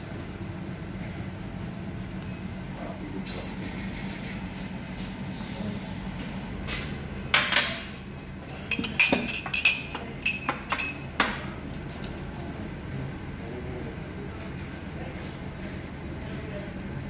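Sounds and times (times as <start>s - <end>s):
steady low hum: 0.0s - 17.0s
dishes and cutlery clinking: 6.7s - 11.5s.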